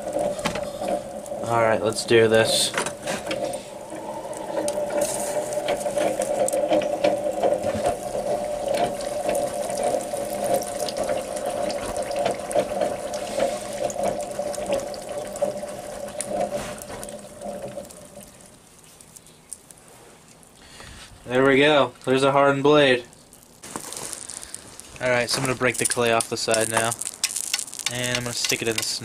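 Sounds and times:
hot blade sizzling in oil: 25.7 - 29.0.

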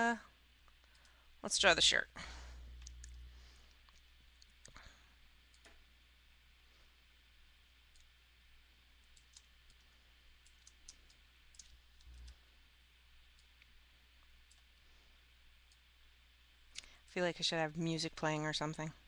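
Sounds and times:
low steady hum: 0.0 - 19.0
computer mouse clicks: 2.8 - 3.2, 7.9 - 8.1, 9.0 - 12.4.

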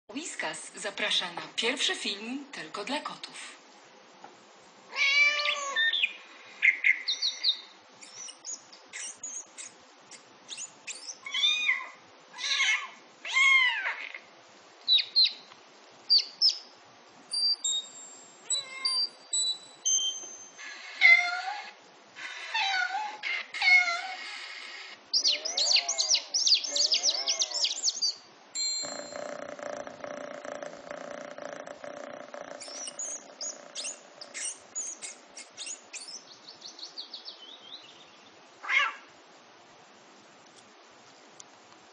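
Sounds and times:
animal meow-like cries: 4.9 - 5.9, 11.2 - 14.3, 20.6 - 24.7, 25.3 - 27.8, 38.6 - 39.1
animal chirps and squeaks: 7.1 - 14.1, 17.3 - 36.2
high whistles: 17.4 - 20.6.

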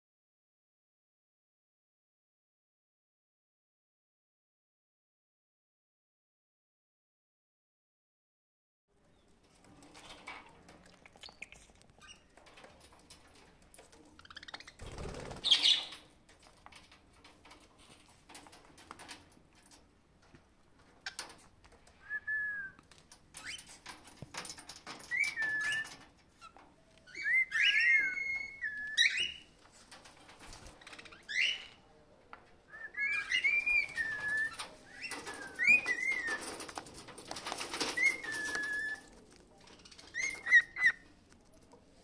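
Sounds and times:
cockatiels whistling: 25.1 - 25.9, 27.1 - 29.4, 32.7 - 36.4, 37.9 - 39.1, 40.1 - 41.0
rustling: 33.1 - 42.0.

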